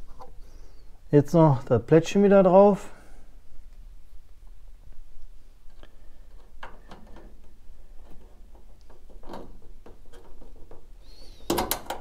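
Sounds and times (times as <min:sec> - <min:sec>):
small metal clicks and knocks: 0:05.7 - 0:10.9, 0:11.5 - 0:12.0.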